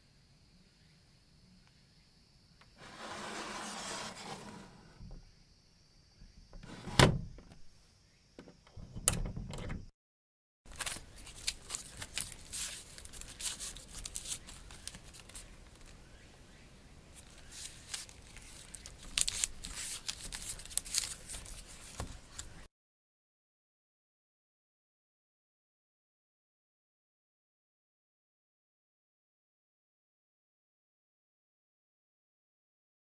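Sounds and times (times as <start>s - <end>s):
sliding screen scraping and rattling: 2.8s - 5.2s, 6.6s - 7.3s
wooden sliding door knocking shut: 6.6s - 7.6s, 8.8s - 9.9s.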